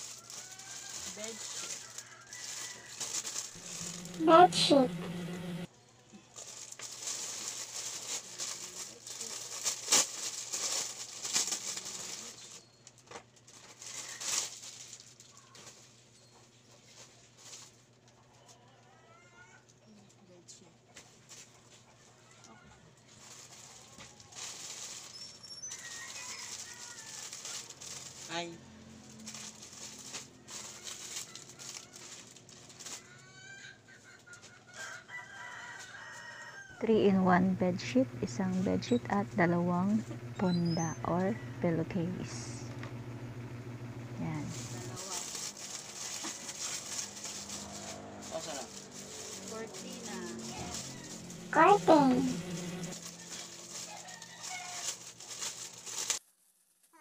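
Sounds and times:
plastic packaging crinkling: 0.0s - 4.4s, 6.3s - 18.1s, 23.1s - 33.4s, 34.8s - 36.7s, 44.4s - 57.0s
chicken calling: 25.3s - 27.2s, 33.0s - 43.0s, 48.9s - 55.0s.

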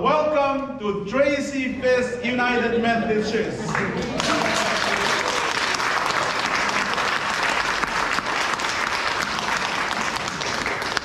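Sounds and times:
crowd clapping: 3.7s - 11.0s.

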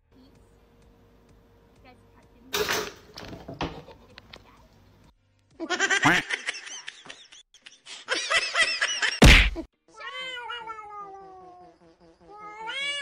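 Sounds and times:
cat yowling: 9.9s - 11.6s, 12.3s - 13.0s.

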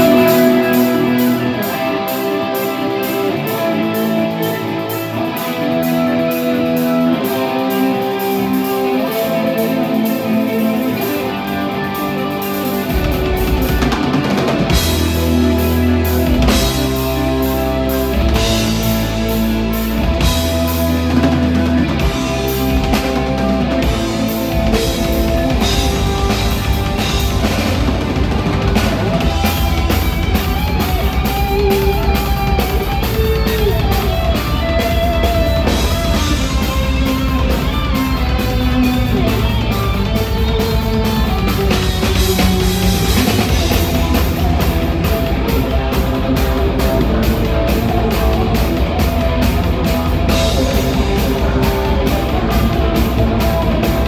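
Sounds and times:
drum kit: 0.0s - 54.0s
lead electric guitar melody: 0.0s - 54.0s
bass and kick drum: 14.7s - 54.0s.

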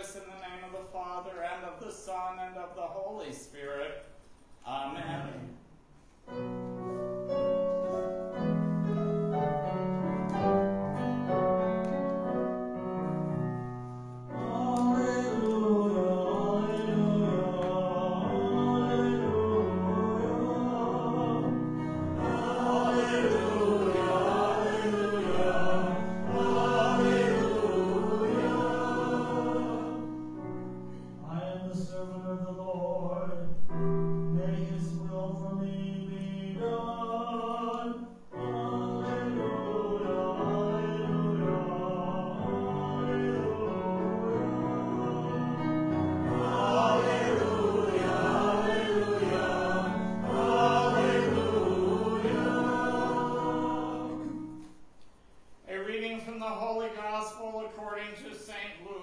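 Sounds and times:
piano notes: 6.2s - 55.0s
choir singing a hymn: 14.2s - 33.6s, 34.4s - 54.7s.

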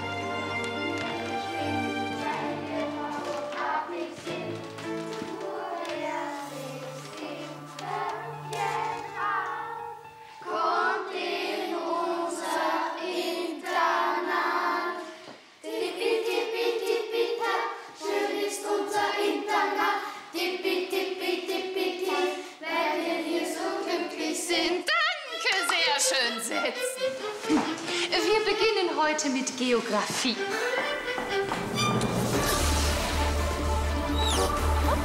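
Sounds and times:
several voices singing: 1.2s - 25.1s, 32.3s - 35.0s.

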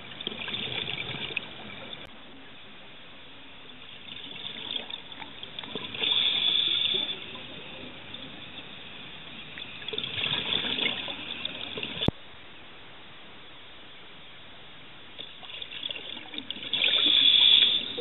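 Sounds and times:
regulator exhaust bubbles gurgling: 0.0s - 2.1s, 4.0s - 12.2s
steady underwater hiss: 0.0s - 18.0s.

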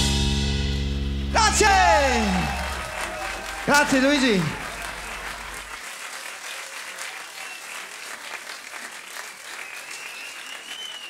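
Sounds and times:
audience applauding: 1.4s - 11.0s
thin wavering whistle: 9.6s - 11.0s.

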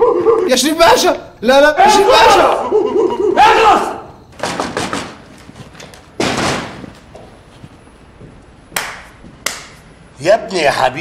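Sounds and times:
knocks on wooden door: 4.4s - 5.2s
door thud: 4.4s - 5.4s, 6.1s - 7.3s
door thumps: 4.4s - 7.4s.

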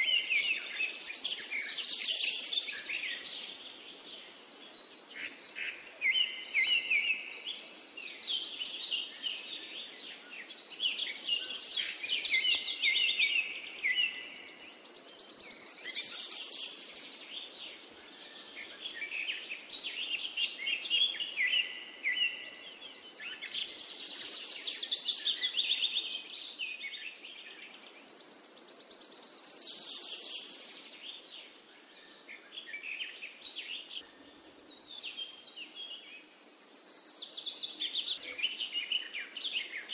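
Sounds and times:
faint background hiss: 0.0s - 39.9s
songbirds chirping and trilling: 0.0s - 39.9s.

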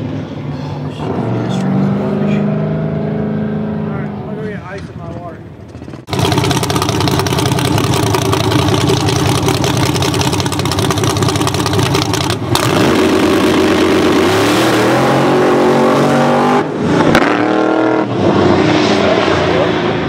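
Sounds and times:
drag car engine revving: 5.5s - 20.0s.

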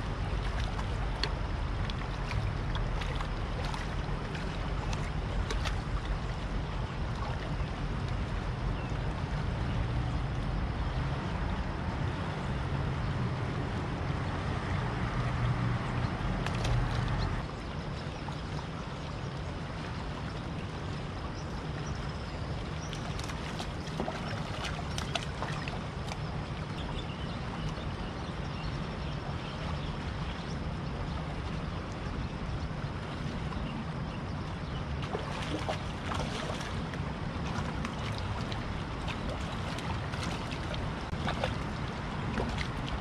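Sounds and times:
fish splashing in water: 0.0s - 8.4s, 22.7s - 26.8s, 35.0s - 43.0s
low rushing water: 0.0s - 43.0s
fish splashing at water surface: 35.0s - 43.0s.

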